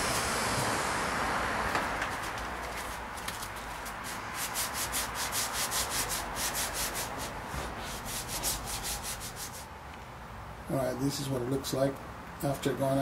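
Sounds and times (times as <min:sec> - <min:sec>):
sandpaper scraping back and forth: 0:02.2 - 0:09.7.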